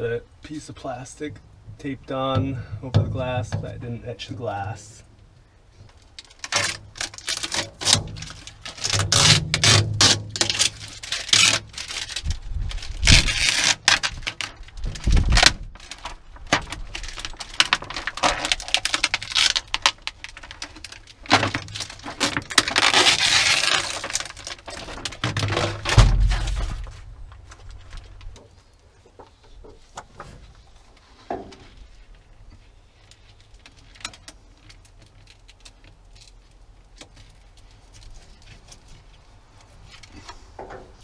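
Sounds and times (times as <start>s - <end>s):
plastic film crinkling: 5.9s - 28.8s, 31.7s - 40.2s
low thumps: 25.7s - 28.4s.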